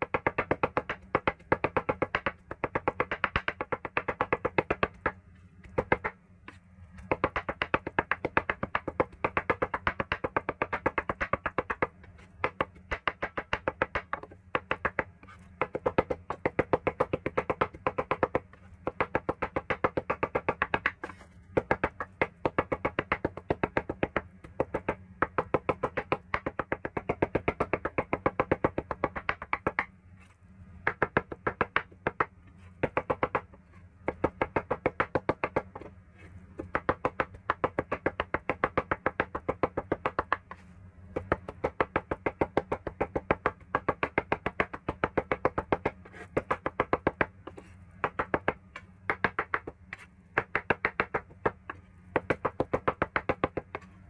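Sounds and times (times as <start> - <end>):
cleaver chopping on wooden board: 0.0 - 6.2, 7.1 - 29.9, 30.9 - 33.5, 34.1 - 35.9, 36.6 - 40.6, 41.2 - 53.9.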